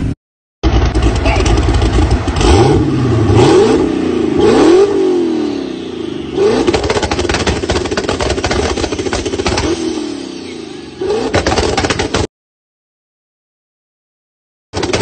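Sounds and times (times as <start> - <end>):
engine crackling idle: 0.6 - 2.7, 6.7 - 10.6
car engine revving: 0.6 - 12.3.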